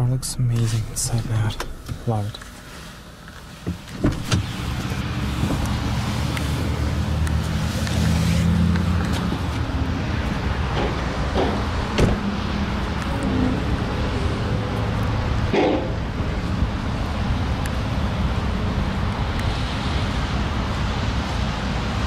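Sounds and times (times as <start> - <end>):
low outdoor rumble: 0.0 - 22.0
car door shutting: 3.6 - 5.8, 10.8 - 12.3
car door latch clicking: 3.9 - 4.5, 11.4 - 12.2.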